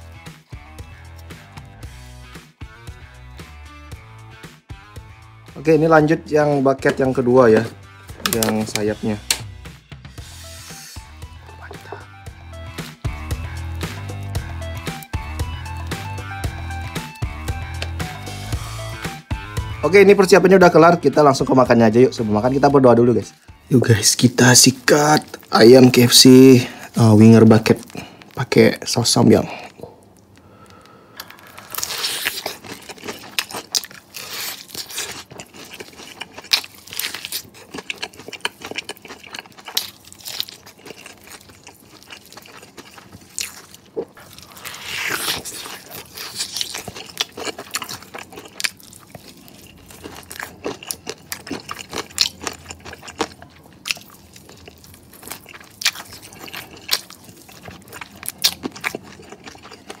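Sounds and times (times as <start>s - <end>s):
crunching and chewing food: 23.3s - 60.0s.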